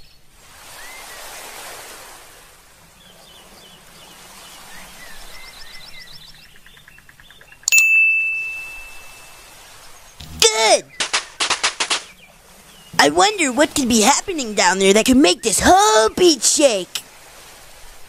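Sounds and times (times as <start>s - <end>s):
bright ding sound effect: 7.7s - 9.4s
soft surf: 7.7s - 18.0s.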